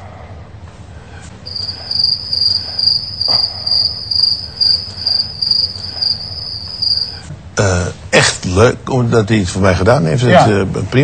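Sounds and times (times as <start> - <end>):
high-pitched pulsing chirping: 1.5 - 7.2.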